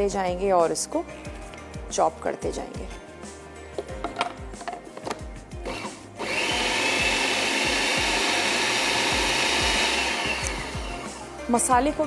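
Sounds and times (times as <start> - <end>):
food processor motor running: 5.7 - 11.2.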